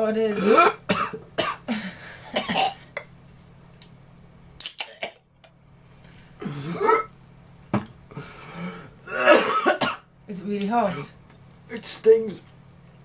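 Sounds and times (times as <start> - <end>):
man coughing hard: 0.4 - 3.0, 6.4 - 7.1, 9.0 - 10.1.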